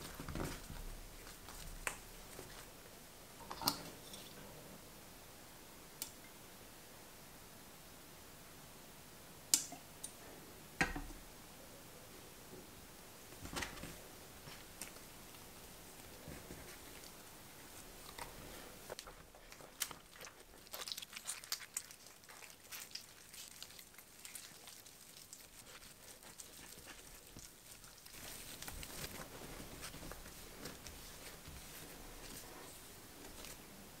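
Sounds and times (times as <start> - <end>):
dough kneaded by hand squelching: 0.0 - 3.0, 13.2 - 34.0.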